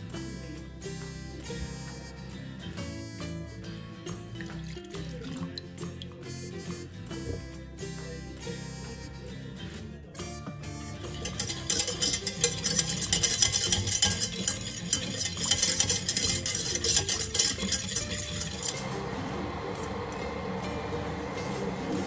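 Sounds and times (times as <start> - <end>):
whisk scraping a metal saucepan: 10.9 - 20.2.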